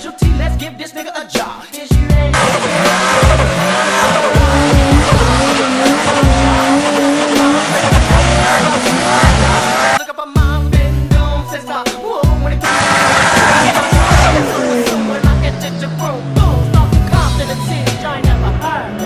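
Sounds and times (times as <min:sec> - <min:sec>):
hip hop beat: 0:00.0 - 0:19.0
car tires squealing: 0:02.4 - 0:10.0, 0:12.6 - 0:15.4.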